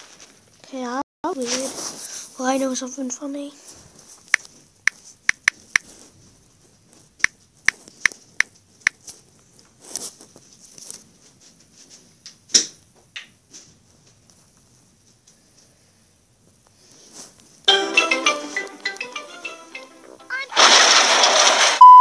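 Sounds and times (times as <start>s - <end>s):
phone keyboard clicks: 4.4s - 5.9s.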